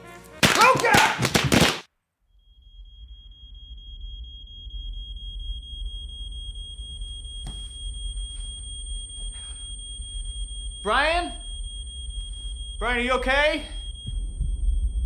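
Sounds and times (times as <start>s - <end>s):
high-pitched ringing tone: 2.3s - 15.0s
low rumble: 2.6s - 12.8s, 13.7s - 15.0s.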